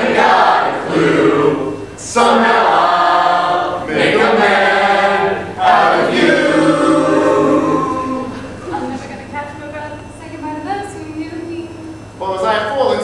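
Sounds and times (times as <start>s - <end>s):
choir singing a cappella: 0.0s - 9.0s.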